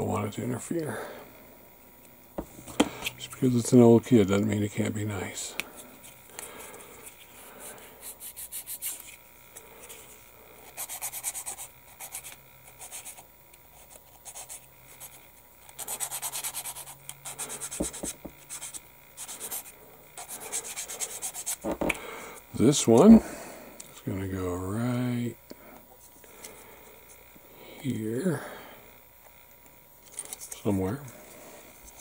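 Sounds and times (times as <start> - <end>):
sanding stick rubbing plastic: 15.7 - 21.7.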